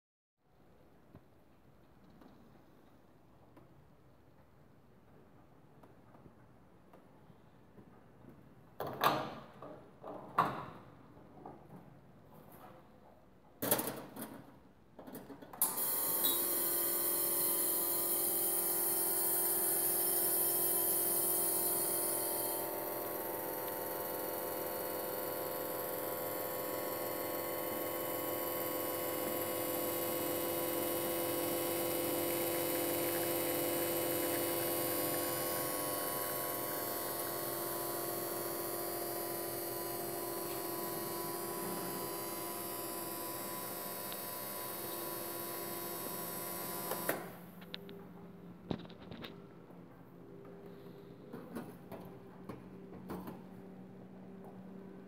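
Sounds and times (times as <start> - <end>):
espresso hissing: 16.0 - 46.2
espresso pump humming: 16.0 - 47.1.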